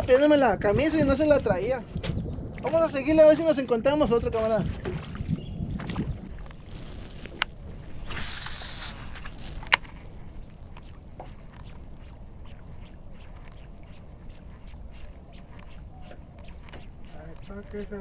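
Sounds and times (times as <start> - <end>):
low wind rumble: 4.1 - 17.0
reel click: 6.3 - 14.0
fishing line running out: 6.3 - 18.0.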